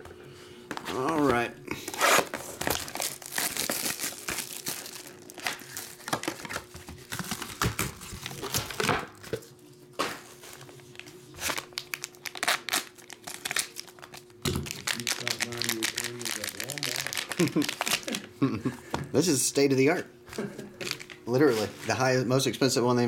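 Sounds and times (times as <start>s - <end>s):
plastic wrap crinkling and tearing: 1.8s - 9.0s, 10.8s - 18.3s, 20.8s - 21.2s.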